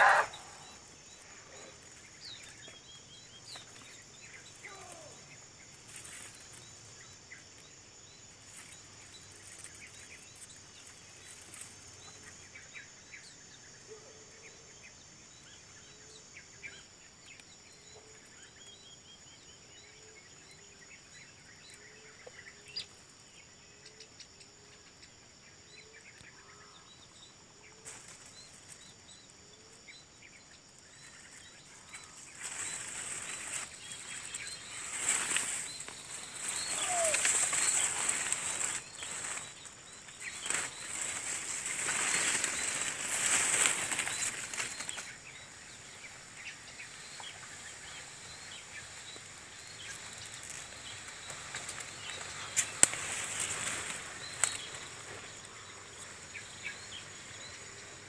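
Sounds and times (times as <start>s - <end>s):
low animal call: 0.0s - 0.8s, 36.5s - 38.0s
high-pitched insect drone: 0.0s - 2.0s, 27.9s - 58.0s
bird chirps: 0.0s - 11.0s
rustling noise: 32.1s - 45.1s.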